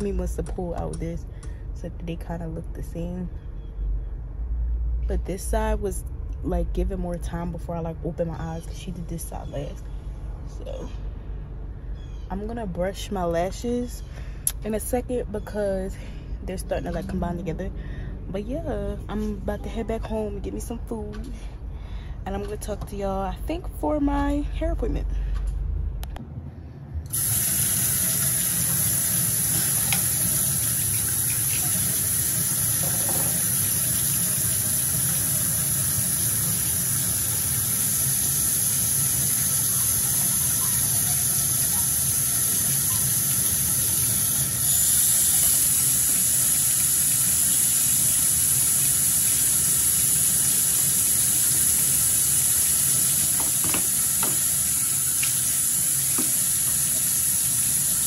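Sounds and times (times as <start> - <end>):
water running: 27.1 - 58.0.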